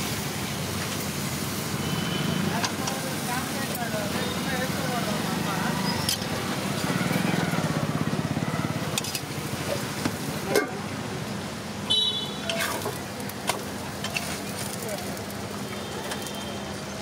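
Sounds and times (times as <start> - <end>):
street traffic engine hum: 0.0 - 17.0.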